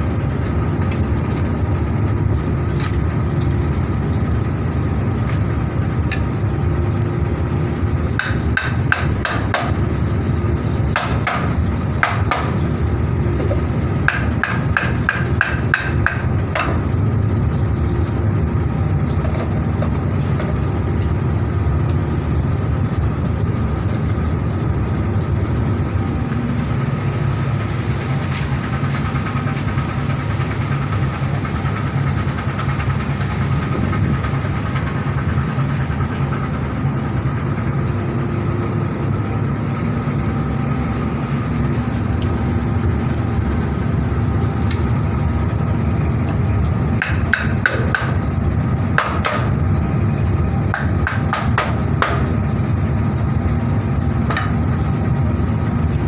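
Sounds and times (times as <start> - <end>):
boat engine rumble: 0.0 - 56.0
wooden stick striking knife: 8.1 - 9.8, 10.9 - 12.6, 14.1 - 16.8, 46.2 - 48.3, 48.9 - 49.5, 50.7 - 52.4.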